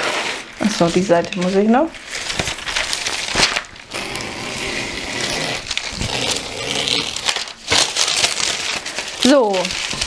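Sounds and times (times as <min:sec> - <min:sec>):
scissors cutting canvas: 0:03.9 - 0:08.4.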